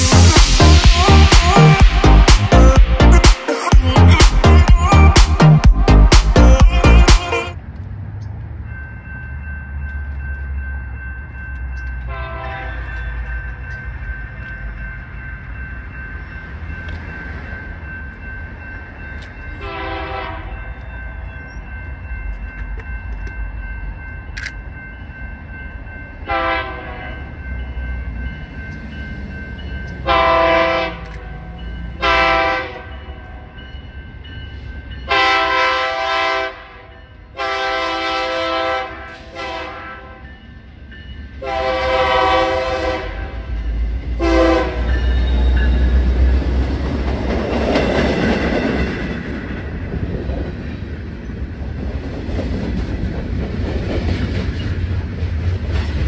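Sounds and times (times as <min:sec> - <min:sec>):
locomotive engines rumbling: 0:00.0 - 0:39.6, 0:40.4 - 0:56.0
train air horn blasts: 0:12.1 - 0:12.9, 0:19.6 - 0:20.6, 0:26.3 - 0:27.2, 0:30.0 - 0:31.2, 0:32.0 - 0:32.9, 0:35.1 - 0:40.2, 0:41.4 - 0:43.5, 0:44.2 - 0:45.6.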